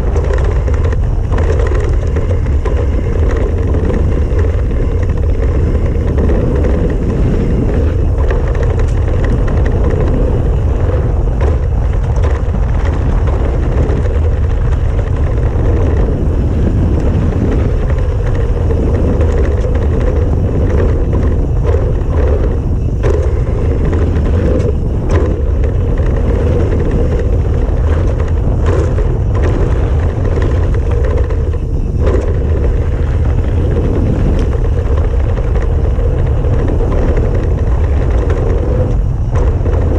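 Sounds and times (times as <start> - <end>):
bike rattling and knocking: 0.0 - 39.9
tyres rumbling on dirt trail: 0.0 - 39.9
wind buffeting microphone: 0.0 - 39.9.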